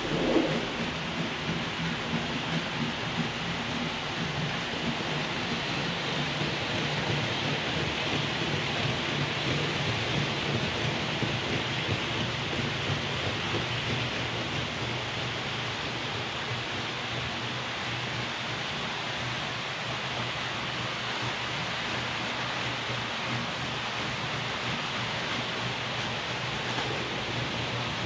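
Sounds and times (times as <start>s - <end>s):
low motor hum: 0.0s - 11.6s.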